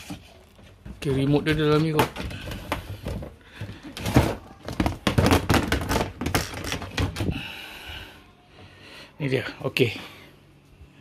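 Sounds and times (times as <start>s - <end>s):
plastic box knocking and clattering: 0.9s - 7.3s.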